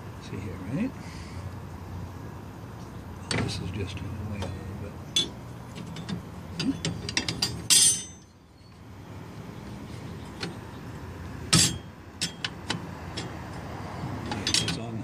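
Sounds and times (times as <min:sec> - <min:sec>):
metal parts clicking and clinking: 0:05.2 - 0:08.3, 0:14.2 - 0:14.9.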